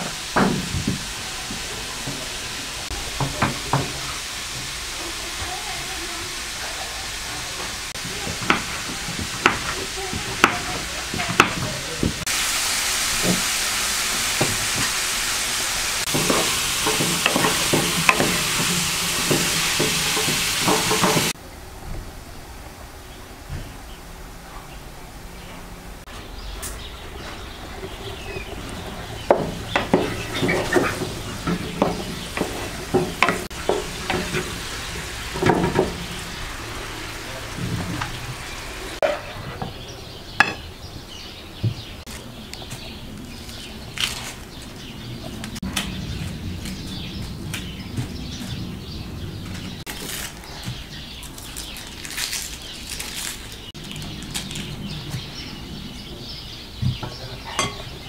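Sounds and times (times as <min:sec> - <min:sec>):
meat sizzling in a pan: 0:00.0 - 0:11.6, 0:12.2 - 0:21.4, 0:28.6 - 0:39.0
spoon knocking against pan: 0:16.1 - 0:21.3, 0:29.3 - 0:34.6.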